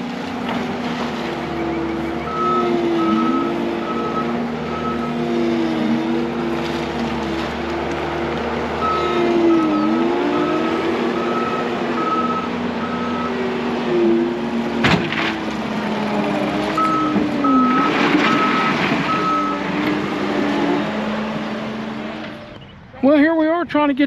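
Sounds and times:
diesel engine running: 0:00.0 - 0:24.0
backup alarm beeping: 0:01.6 - 0:05.2, 0:11.2 - 0:13.4.

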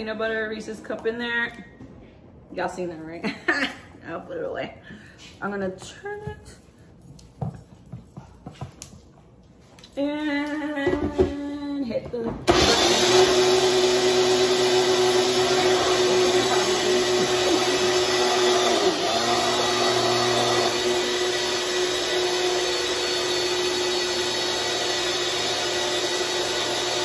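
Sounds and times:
blender motor running: 0:12.5 - 0:27.0.

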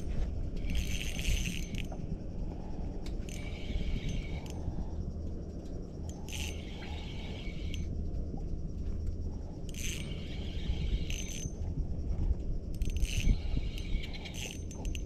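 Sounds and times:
low rumble: 0:00.0 - 0:14.2
fishing reel whirring: 0:00.6 - 0:02.0, 0:03.2 - 0:04.8, 0:06.1 - 0:07.9, 0:09.7 - 0:11.6, 0:12.7 - 0:15.0.

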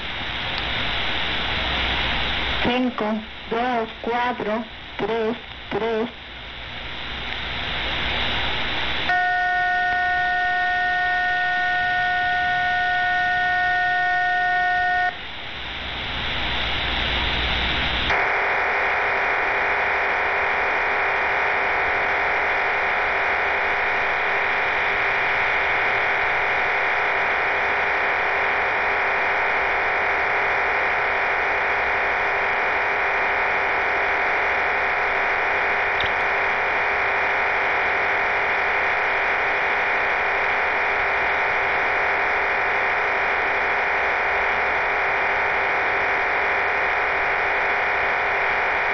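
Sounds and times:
rush of radio noise: 0:00.0 - 0:48.9
static-like data hiss: 0:00.0 - 0:48.9
steady radio tones: 0:00.0 - 0:48.9.

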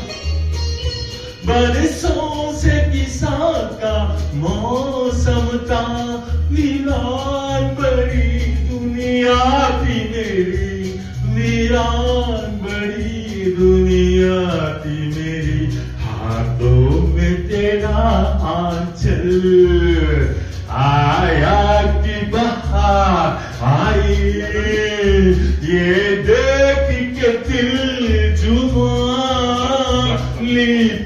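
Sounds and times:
backing track with bass line: 0:00.0 - 0:31.0
man singing into a microphone: 0:01.2 - 0:31.0.

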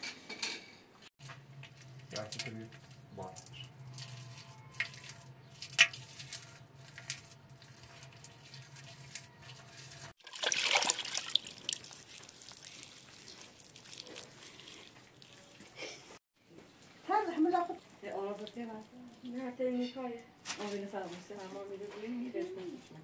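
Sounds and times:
wet plaster smeared by hand: 0:04.0 - 0:15.8.

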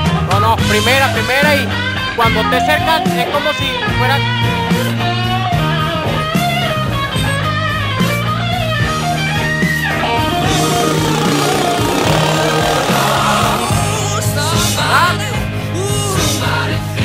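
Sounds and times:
bass guitar: 0:09.9 - 0:15.1.

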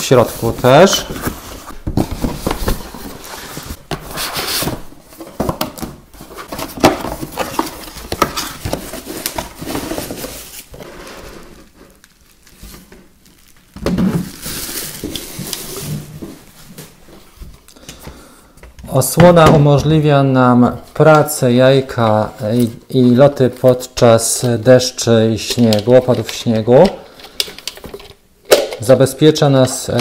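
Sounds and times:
bubble wrap rustling: 0:00.0 - 0:17.7
cardboard box being opened: 0:00.3 - 0:11.8.

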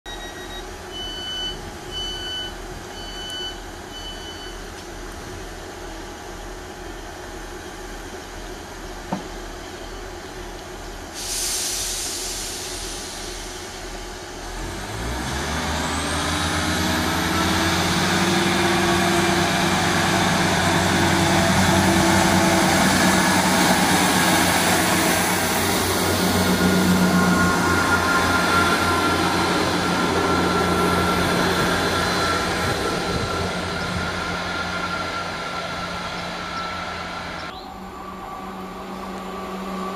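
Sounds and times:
door warning beeps: 0:00.1 - 0:04.6
train diesel engines whining: 0:00.1 - 0:39.9
air hiss from brakes: 0:11.1 - 0:14.4.

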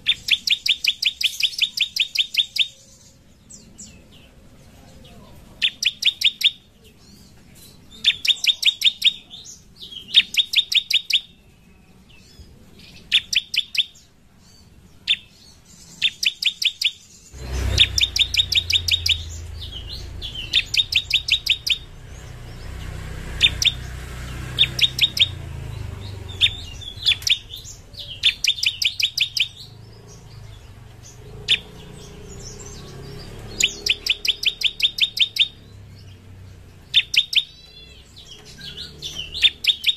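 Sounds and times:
bird singing sharp high bursts: 0:00.0 - 0:03.9, 0:05.6 - 0:06.8, 0:07.9 - 0:11.4, 0:12.9 - 0:14.1, 0:15.0 - 0:36.2, 0:36.8 - 0:39.9
low rumble: 0:17.4 - 0:21.2.

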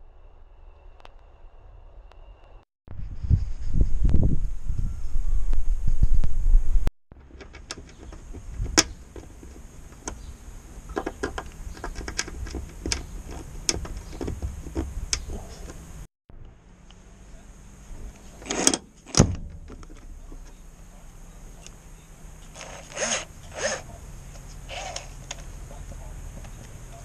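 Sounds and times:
screwdriver clicking and creaking: 0:07.2 - 0:10.3, 0:10.9 - 0:15.8, 0:22.4 - 0:25.5
scraping knocks: 0:07.2 - 0:16.1.

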